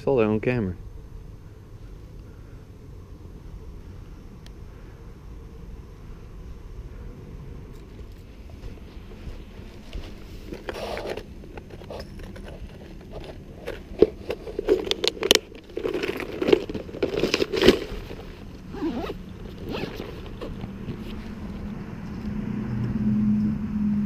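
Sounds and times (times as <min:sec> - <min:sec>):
plastic box rattling and scraping: 0:08.1 - 0:21.7
zipper pulled closed: 0:09.7 - 0:21.7.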